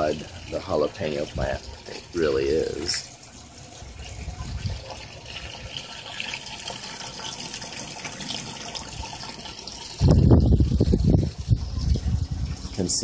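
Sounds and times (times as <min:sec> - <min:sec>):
water running and splashing: 0:00.0 - 0:13.0
wind buffeting microphone: 0:03.7 - 0:05.8, 0:09.8 - 0:13.0.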